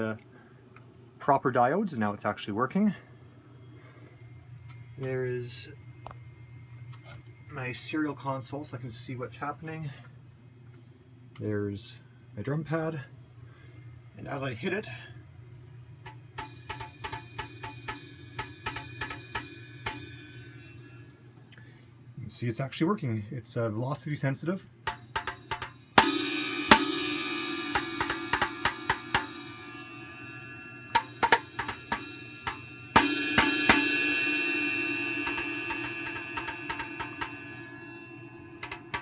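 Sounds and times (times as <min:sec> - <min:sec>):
sharp ringing drum hits: 0:16.1 - 0:21.1, 0:24.8 - 0:39.0.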